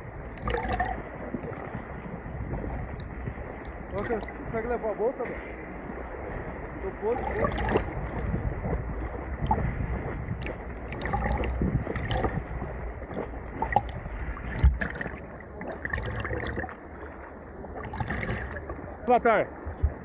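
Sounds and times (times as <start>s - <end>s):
water splashing and sloshing: 0.0s - 20.0s
water washing over microphone: 0.0s - 20.0s.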